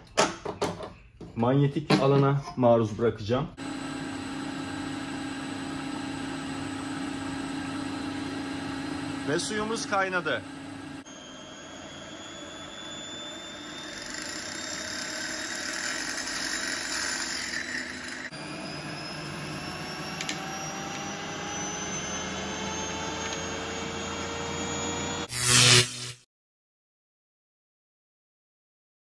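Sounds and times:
mechanical whine of spinning rig: 0:03.6 - 0:26.2.

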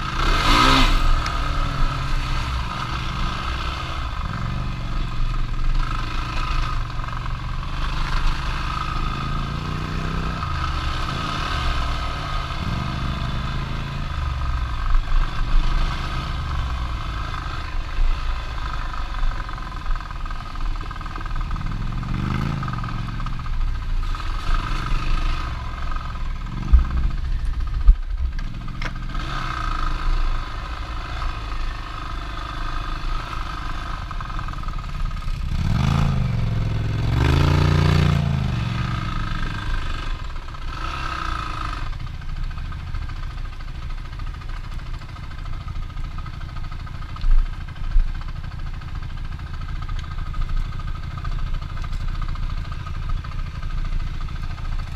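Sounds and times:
off-road vehicle engine revving: 0:00.0 - 0:19.4, 0:21.4 - 0:23.4, 0:24.0 - 0:27.6, 0:28.4 - 0:42.0.

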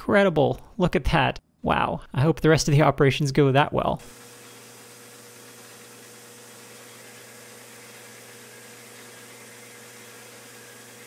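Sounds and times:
metal lathe humming and whining: 0:04.1 - 0:11.0.

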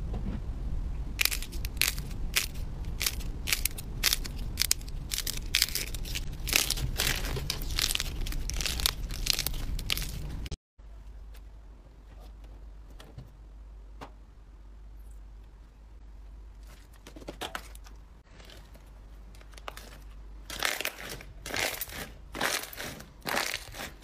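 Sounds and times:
slime crackling and crunching: 0:01.2 - 0:10.6, 0:18.2 - 0:24.0.

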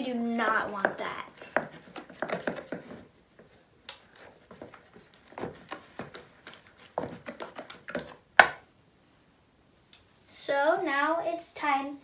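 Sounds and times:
spoon scraping plastic bowl: 0:01.2 - 0:08.2.

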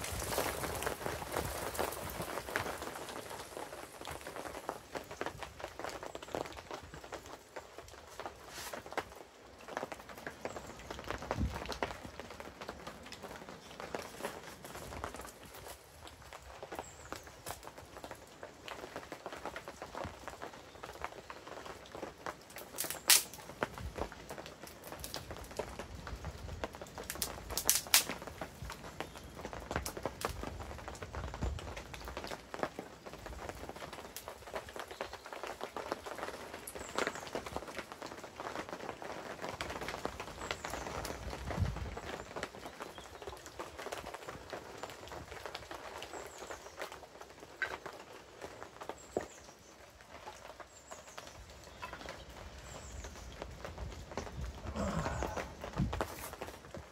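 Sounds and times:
wood fire crackling: 0:00.0 - 0:56.9
sharp snaps of kindling: 0:22.8 - 0:23.4, 0:27.2 - 0:28.2.

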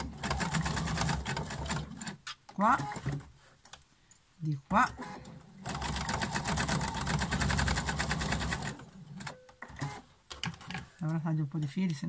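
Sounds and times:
sewing machine stitching: 0:00.0 - 0:03.2, 0:04.8 - 0:10.9.

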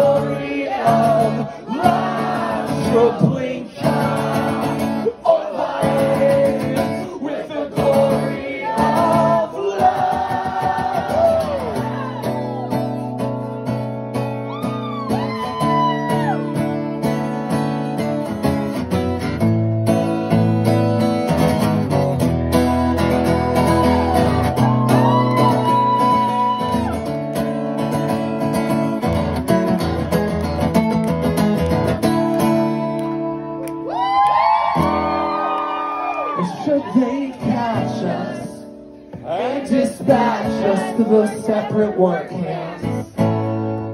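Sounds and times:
acoustic guitar strumming: 0:00.0 - 0:33.9, 0:37.0 - 0:43.9.

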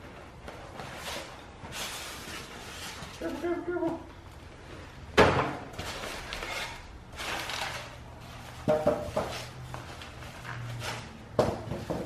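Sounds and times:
rustling and scraping packaging: 0:00.0 - 0:04.0, 0:05.7 - 0:12.0.

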